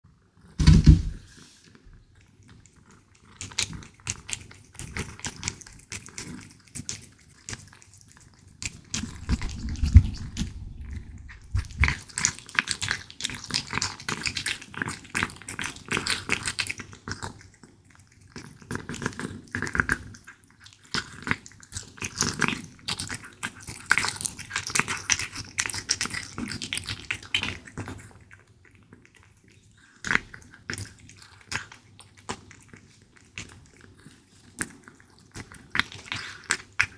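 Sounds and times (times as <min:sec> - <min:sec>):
thump: 0:00.6 - 0:01.2
cat chewing raw meat: 0:01.7 - 0:36.9.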